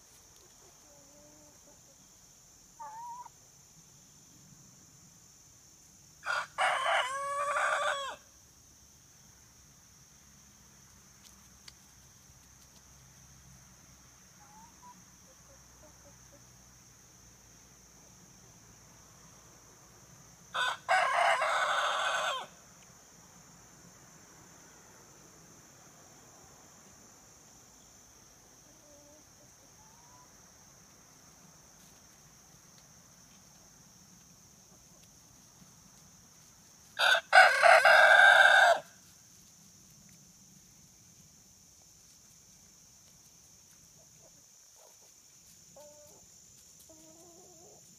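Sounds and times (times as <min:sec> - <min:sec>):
high-pitched insect chorus: 0:00.0 - 0:47.9
rooster crowing: 0:06.2 - 0:08.2, 0:20.6 - 0:22.6, 0:37.0 - 0:38.9.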